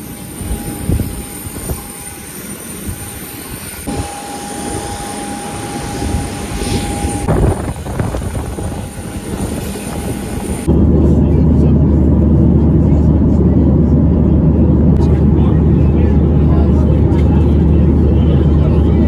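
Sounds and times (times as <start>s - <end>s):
jet engine whine: 0.0s - 19.0s
rough low rumble: 6.9s - 19.0s.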